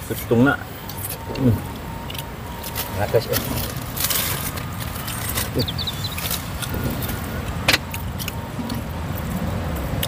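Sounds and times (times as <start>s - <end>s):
low rumble of road traffic: 0.0s - 10.0s.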